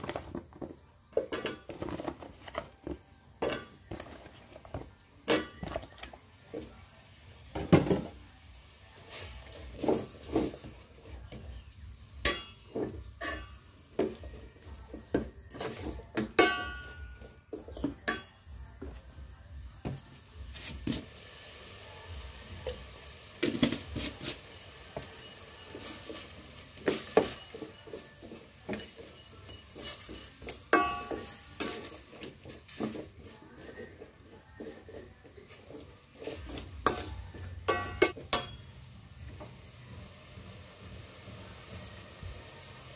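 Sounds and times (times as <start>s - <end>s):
ladle scraping metal pot: 15.4s - 17.3s, 23.4s - 38.6s.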